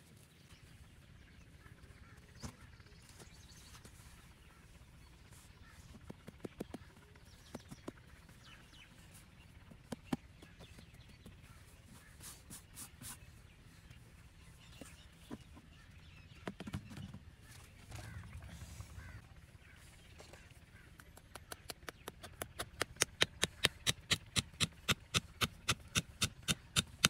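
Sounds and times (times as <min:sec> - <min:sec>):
faint bird calls: 0:01.4 - 0:24.2
hands scraping dry soil: 0:09.0 - 0:13.4
sharp taps and knocks: 0:21.0 - 0:27.0.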